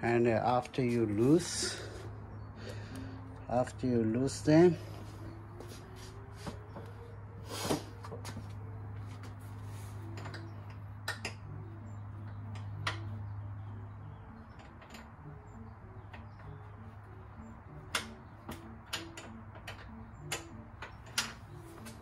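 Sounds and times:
hand tool clicks and knocks: 0:10.1 - 0:11.6, 0:17.9 - 0:22.0.

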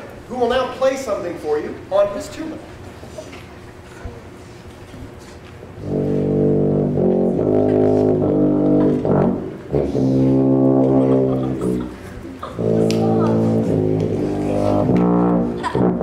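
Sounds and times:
tuba playing low notes: 0:05.7 - 0:16.0.

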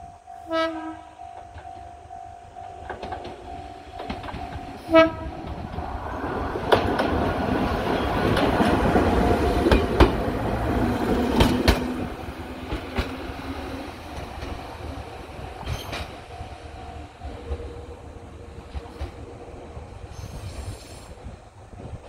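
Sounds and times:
train rumbling over steel bridge: 0:00.0 - 0:22.0
train horn blast: 0:00.4 - 0:01.3, 0:04.7 - 0:05.6
wheels clacking over rail joints: 0:01.3 - 0:20.3.

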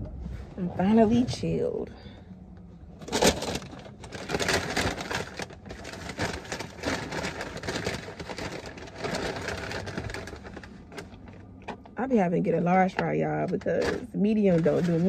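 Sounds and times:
paper bag rustling: 0:03.0 - 0:11.6, 0:13.3 - 0:15.0.

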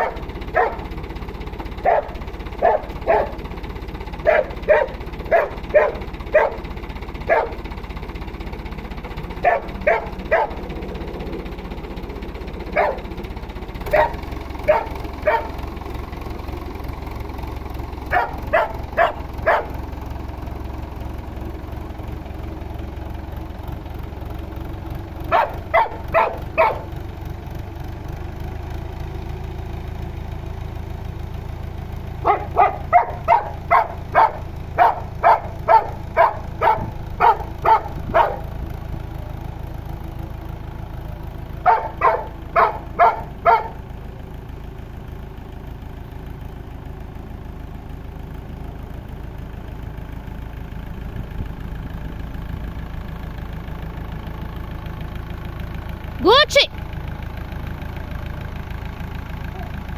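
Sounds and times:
dog barking: 0:00.0 - 0:01.0, 0:01.8 - 0:03.5, 0:04.2 - 0:07.7, 0:09.4 - 0:10.8, 0:12.6 - 0:13.2, 0:13.9 - 0:15.6, 0:18.1 - 0:19.8, 0:25.3 - 0:27.0, 0:32.2 - 0:38.6, 0:41.6 - 0:43.8
tractor engine hum: 0:00.0 - 0:59.9.

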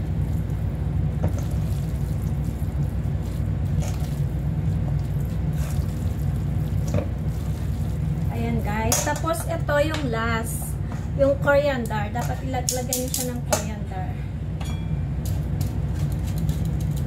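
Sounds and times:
noodles squishing: 0:00.0 - 0:08.8
low hum: 0:00.0 - 0:17.0.

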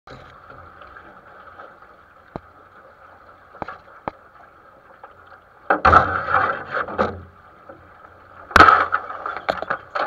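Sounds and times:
water rushing along boat hull: 0:00.1 - 0:10.0
sharp knocks from boat: 0:05.7 - 0:07.3, 0:08.5 - 0:10.0.

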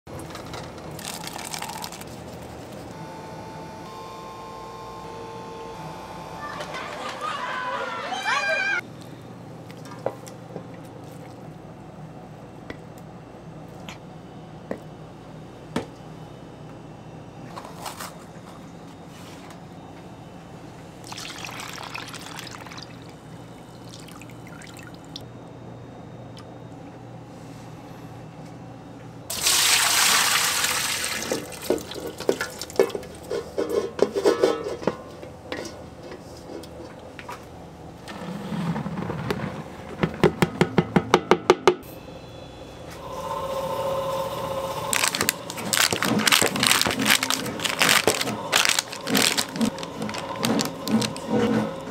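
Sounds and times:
milk pouring and splashing: 0:01.0 - 0:02.1, 0:21.0 - 0:23.2, 0:29.3 - 0:33.1
wrapper rustling: 0:01.0 - 0:02.8, 0:44.9 - 0:51.5.

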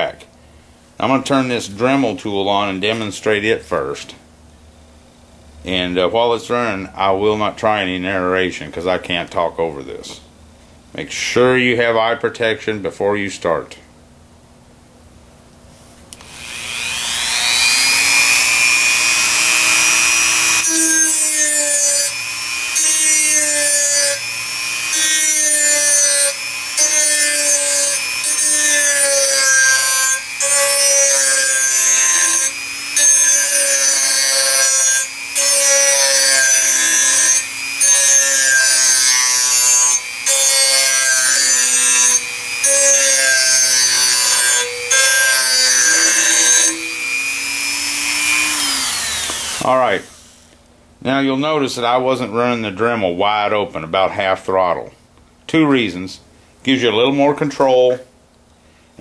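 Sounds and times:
rotary tool motor whine: 0:16.2 - 0:49.7
sanding drum grinding metal: 0:19.0 - 0:49.7.

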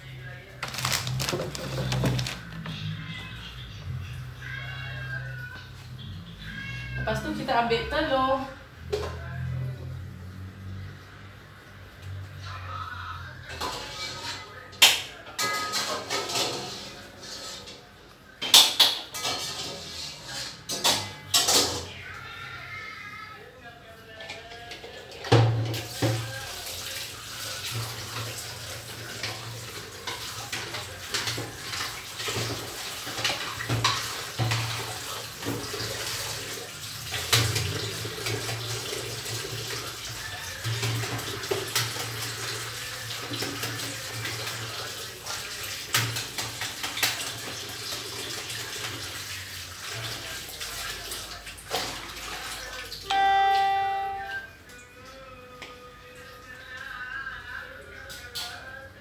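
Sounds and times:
loud steady beep: 0:53.1 - 0:54.3.

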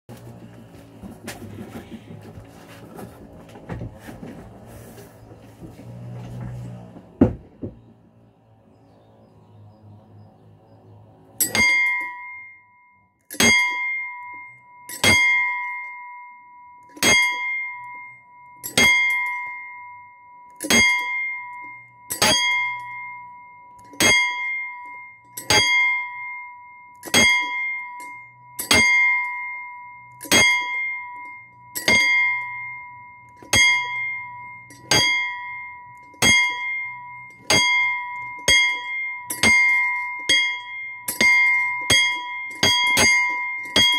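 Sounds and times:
metal bell struck: 0:11.4 - 0:12.6, 0:27.0 - 0:43.9.

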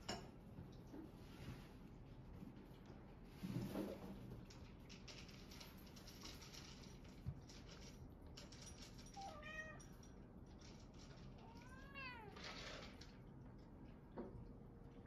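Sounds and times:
cat meowing: 0:09.2 - 0:09.8, 0:11.4 - 0:12.4.

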